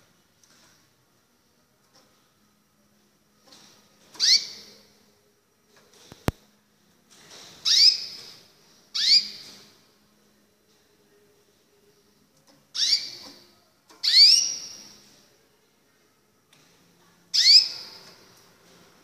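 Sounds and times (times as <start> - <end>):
canary call notes: 4.2 - 4.8, 9.0 - 9.4, 12.8 - 13.4, 14.0 - 14.9, 17.3 - 18.1.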